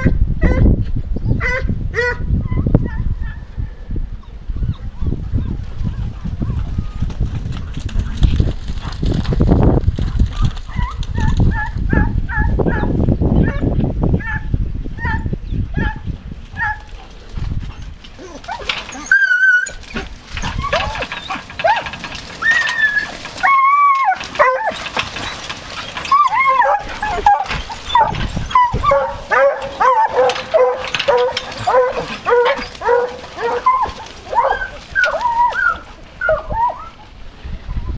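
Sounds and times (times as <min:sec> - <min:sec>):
hounds baying: 0:16.6 - 0:37.1.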